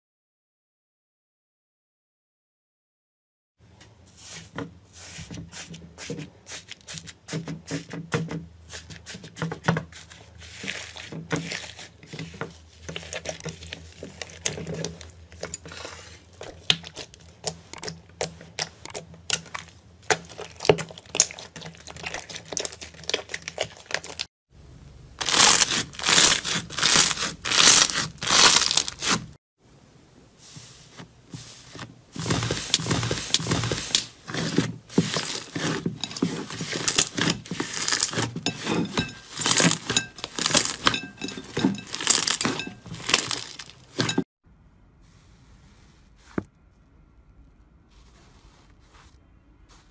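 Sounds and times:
slime crackling and popping: 25.2s - 29.2s.

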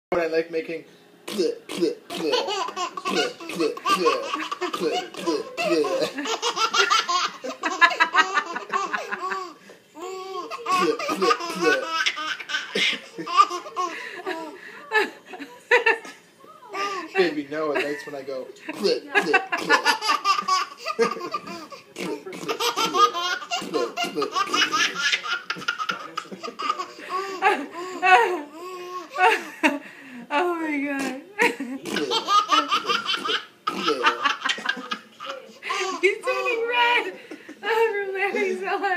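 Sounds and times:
baby laughing: 2.1s - 14.6s, 18.8s - 29.4s, 31.9s - 36.6s.

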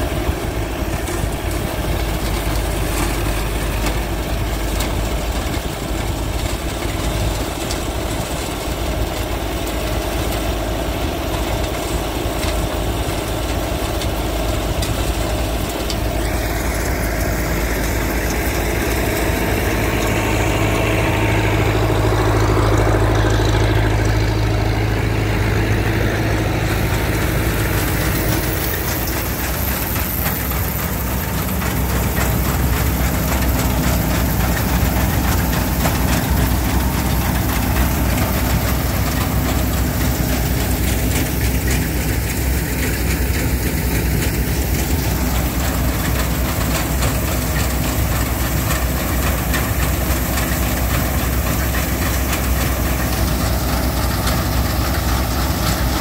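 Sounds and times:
engine running: 0.0s - 56.0s.

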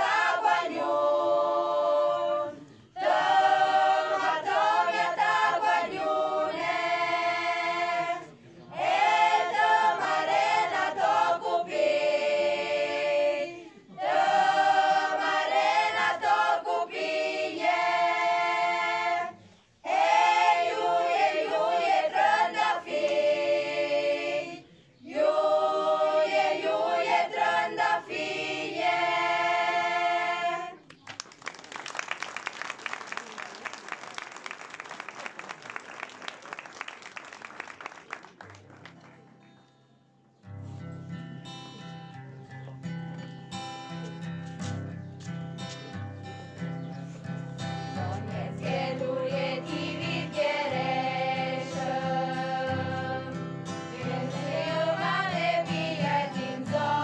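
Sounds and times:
women's choir singing unaccompanied: 0.0s - 30.9s, 47.6s - 57.0s
audience applauding: 30.9s - 39.3s.

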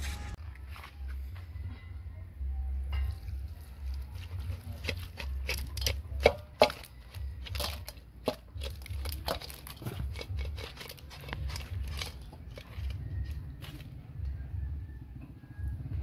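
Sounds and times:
crab shells clattering in bowl: 3.8s - 13.8s
spoon knocking metal: 4.2s - 13.4s.

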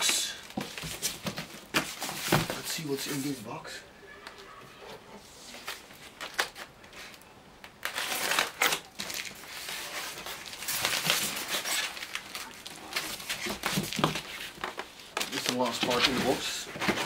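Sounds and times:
cardboard rustling: 0.4s - 3.4s, 7.8s - 17.0s.

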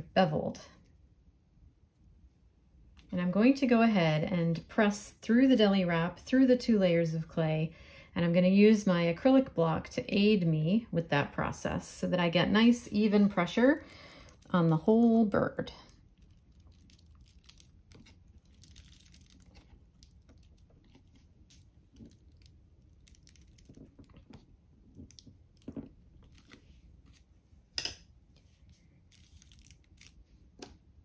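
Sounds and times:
plastic wrap crinkling: 13.7s - 27.4s, 28.4s - 30.4s.

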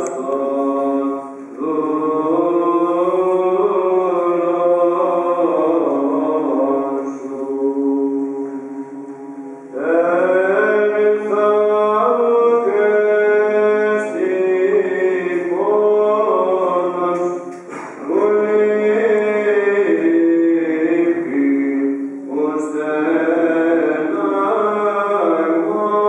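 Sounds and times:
chanted melody: 7.0s - 12.2s
held drone note: 7.7s - 11.1s.

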